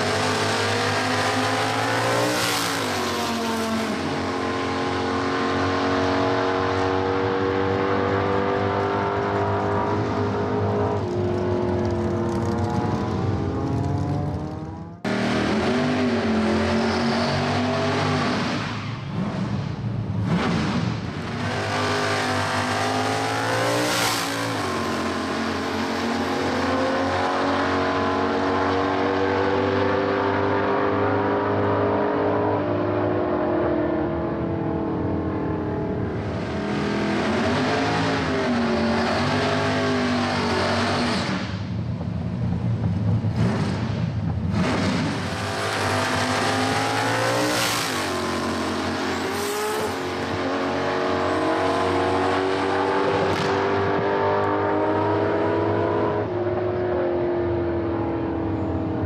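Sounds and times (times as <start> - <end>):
racing car engine running hard: 0.0 - 56.7.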